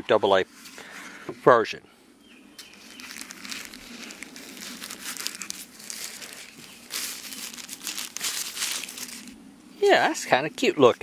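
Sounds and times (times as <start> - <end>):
tissue paper crinkling: 2.6 - 9.4.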